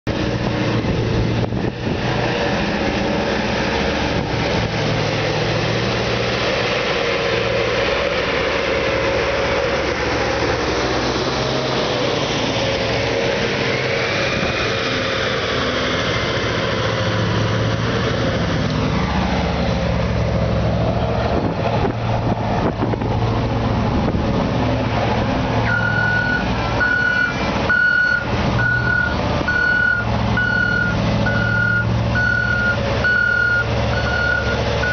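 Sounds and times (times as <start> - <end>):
truck diesel engine running: 0.1 - 34.9
reversing alarm beeping: 25.6 - 34.9.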